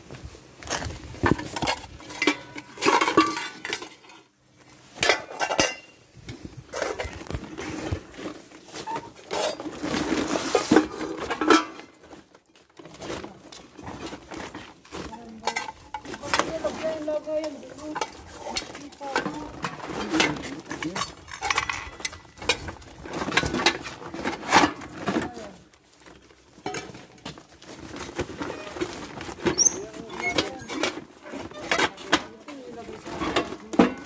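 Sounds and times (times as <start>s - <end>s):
metal pots and lids clanking: 1.3s - 4.3s, 4.9s - 6.0s, 8.9s - 11.9s, 15.4s - 16.4s, 17.5s - 25.2s, 26.6s - 27.4s.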